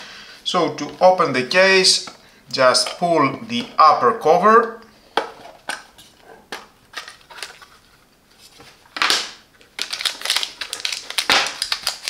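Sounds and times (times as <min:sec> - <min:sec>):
plastic bag crinkling: 0:09.0 - 0:12.0.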